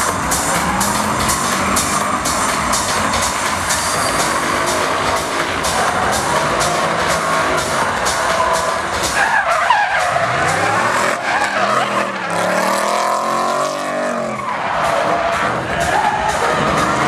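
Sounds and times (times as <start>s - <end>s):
car engine revving: 0.0s - 17.0s
tyres squealing: 0.4s - 13.1s.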